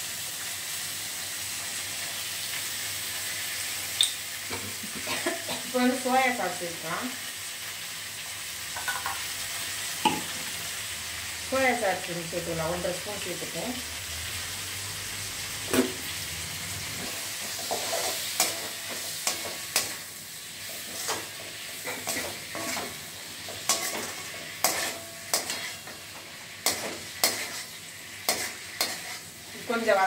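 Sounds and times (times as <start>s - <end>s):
onions sizzling in oil: 0.0s - 30.0s
ladle scraping and knocking pan: 20.8s - 26.0s.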